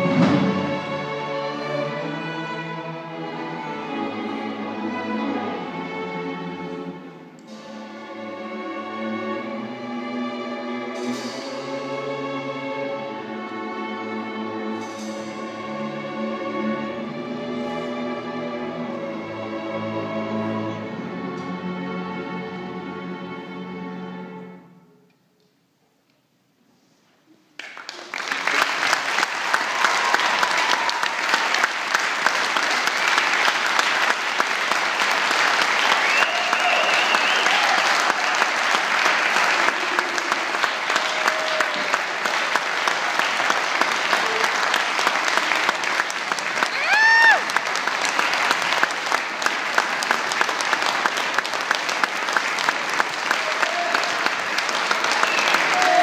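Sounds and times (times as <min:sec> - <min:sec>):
audience applause: 0:27.6 - 0:56.0.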